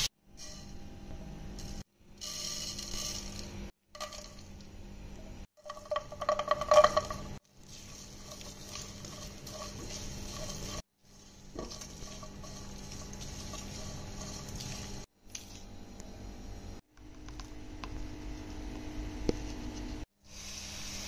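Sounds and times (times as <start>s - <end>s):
seeds rattling in a pan: 1.6s - 4.5s, 5.6s - 15.5s
spatula stirring: 5.6s - 15.1s.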